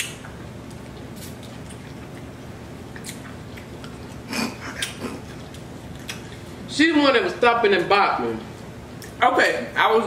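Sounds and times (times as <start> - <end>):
steady low hum: 0.0 - 10.0
wet chewing of seafood: 0.4 - 6.6.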